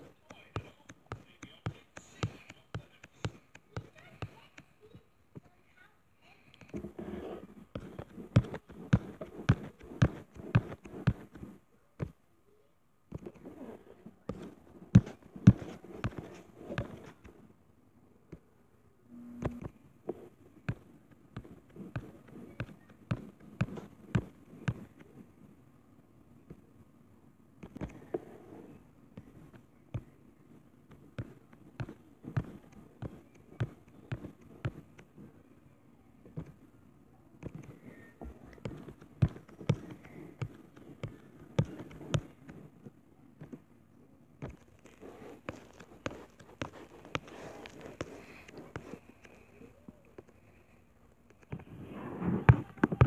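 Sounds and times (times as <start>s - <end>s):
fingertips tapping on touchscreen: 0.0s - 5.6s, 6.5s - 12.2s, 13.1s - 17.4s, 19.2s - 25.3s, 27.6s - 28.3s, 29.1s - 35.3s, 36.2s - 36.7s, 37.4s - 43.6s, 44.4s - 50.5s
brief low hum: 19.0s - 19.7s.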